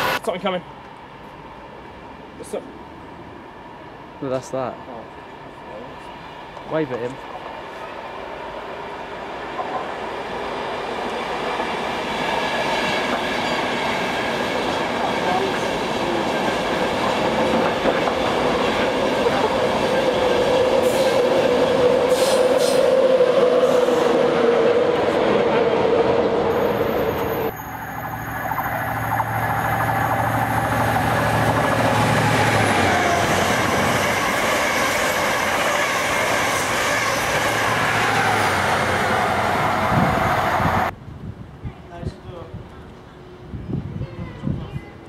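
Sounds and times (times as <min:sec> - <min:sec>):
diesel locomotive passing: 0:00.0 - 0:41.2
electric train rail rumble: 0:00.8 - 0:41.5.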